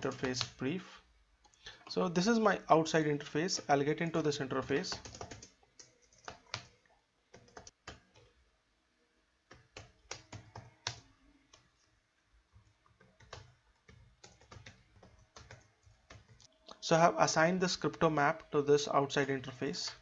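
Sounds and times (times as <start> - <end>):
keyboard typing: 0.0 - 0.6, 3.5 - 8.4, 9.5 - 11.7, 12.5 - 16.5.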